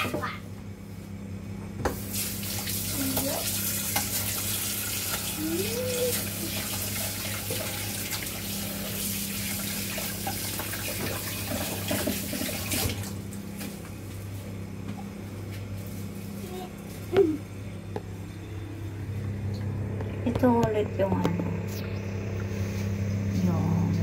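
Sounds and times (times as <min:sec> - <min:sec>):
tap water running into sink: 0:01.8 - 0:13.2
steady low hum: 0:13.0 - 0:24.0.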